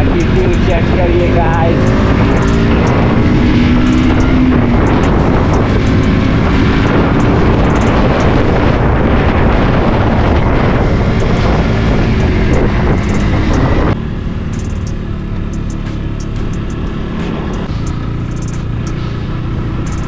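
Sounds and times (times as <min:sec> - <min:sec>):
wind rushing over microphone: 0:00.0 - 0:15.2
motorcycle engine running: 0:00.0 - 0:20.0.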